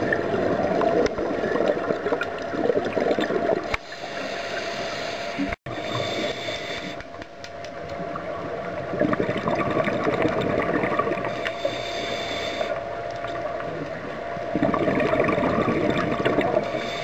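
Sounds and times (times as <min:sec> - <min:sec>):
faint steady hum: 0:00.0 - 0:17.0
diver's exhaled air bubbling: 0:08.8 - 0:11.8, 0:14.5 - 0:17.0.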